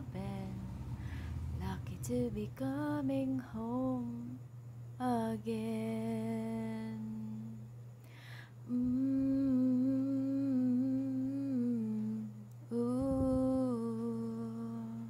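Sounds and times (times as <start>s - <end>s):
woman humming a melody: 0.0s - 0.6s, 5.0s - 7.7s, 8.6s - 15.0s
woman breathing in: 1.0s - 1.4s, 8.0s - 8.6s.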